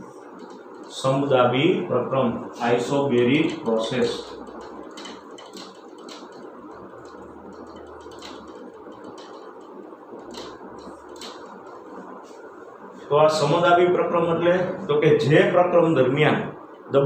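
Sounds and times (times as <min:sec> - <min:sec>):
faint room noise: 0:00.0 - 0:17.0
marker pen scratching on whiteboard: 0:02.6 - 0:12.6.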